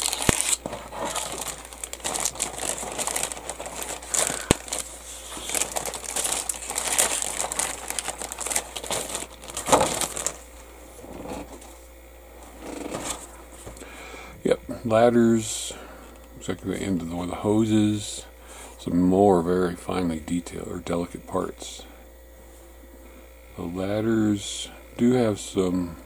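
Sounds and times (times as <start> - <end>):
plastic bag crinkling: 0.0 - 10.6.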